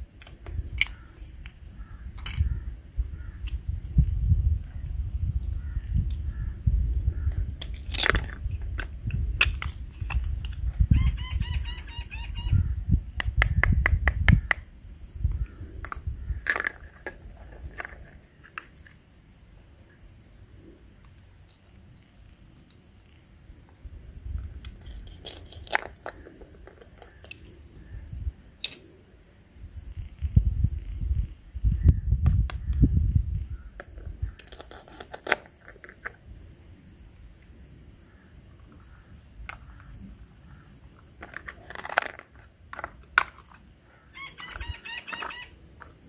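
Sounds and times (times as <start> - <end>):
small birds chirping: 0.0 - 41.7, 43.0 - 46.0
plastic toy clicks and knocks: 15.8 - 18.0, 24.6 - 27.4, 41.2 - 43.6.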